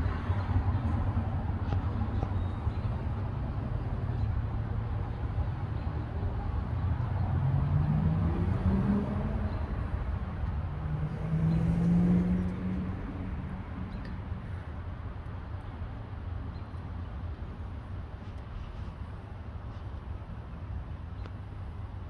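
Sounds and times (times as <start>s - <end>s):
vehicle engine passing: 7.0s - 14.0s.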